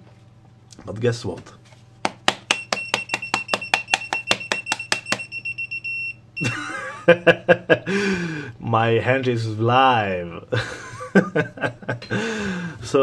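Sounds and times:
voltage detector beeping fast: 0:02.5 - 0:06.5
person laughing: 0:06.4 - 0:08.3, 0:10.5 - 0:12.6.

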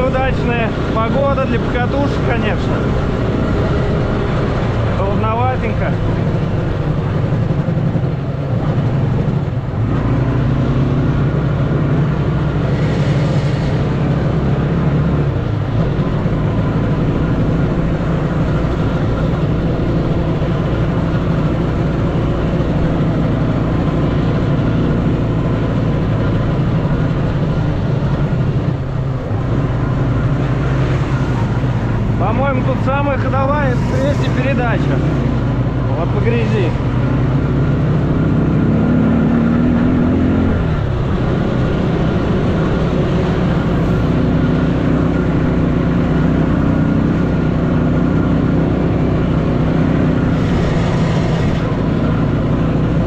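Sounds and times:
off-road vehicle engine running: 0:00.0 - 0:53.0.

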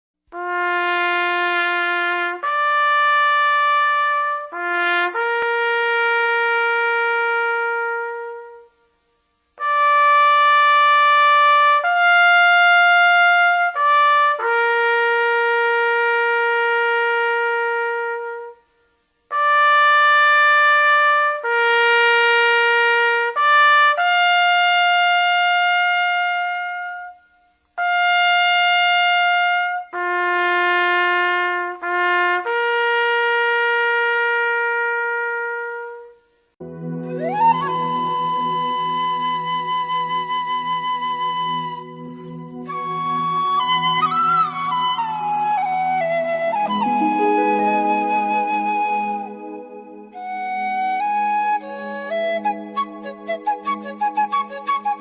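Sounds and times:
wind instrument melody: 0:00.4 - 0:08.8, 0:09.6 - 0:18.7, 0:36.6 - 0:55.0.

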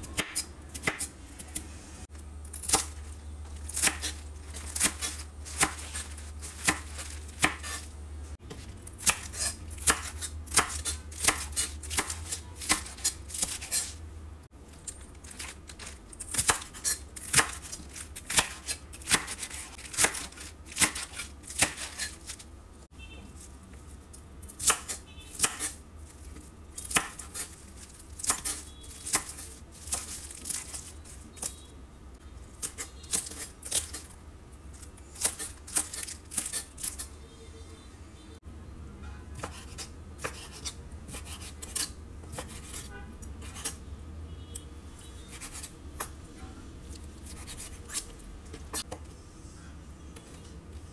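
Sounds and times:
knife chopping on wooden board: 0:06.6 - 0:07.8, 0:39.4 - 0:43.8.

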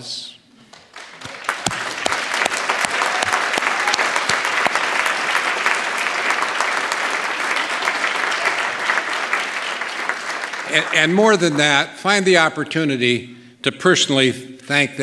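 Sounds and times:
audience applauding: 0:00.7 - 0:11.8.

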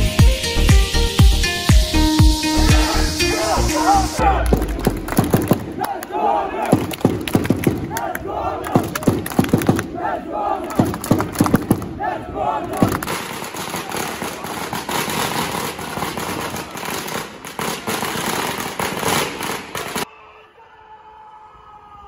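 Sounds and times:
crowd chanting and clapping: 0:02.6 - 0:14.9.

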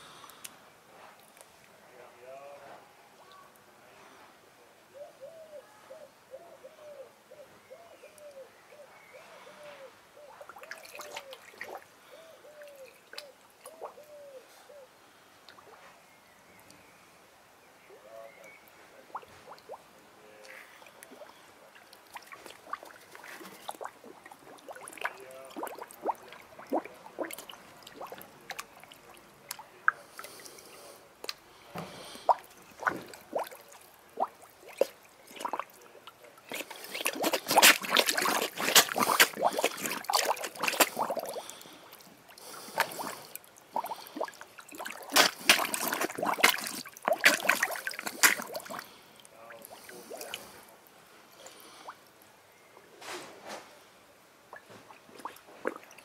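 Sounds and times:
fish slurping and splashing: 0:10.4 - 0:14.0, 0:19.1 - 0:19.8, 0:20.7 - 0:31.4, 0:32.0 - 0:50.7, 0:54.5 - 0:56.0.

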